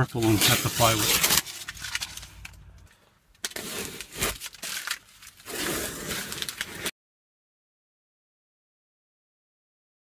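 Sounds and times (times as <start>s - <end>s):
tape peeling and crumpling: 0.3s - 2.8s, 3.4s - 6.9s.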